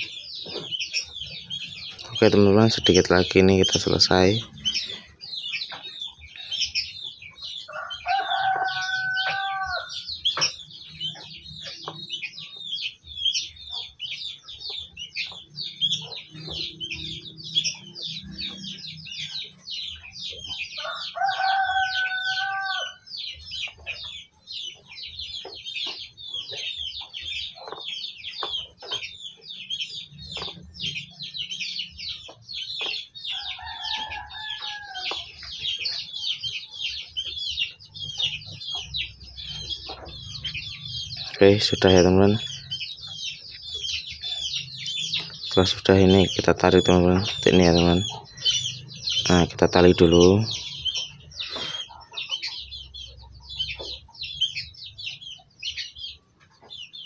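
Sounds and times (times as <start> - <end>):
small birds chirping: 0.0 - 57.0
rooster crowing: 7.7 - 10.2, 20.8 - 23.1, 33.3 - 35.2.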